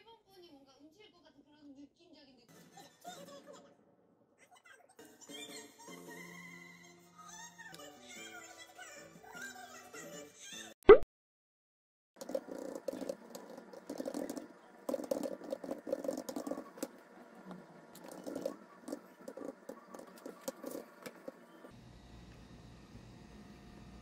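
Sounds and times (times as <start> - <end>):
fast keyboard typing: 12.2 - 21.7.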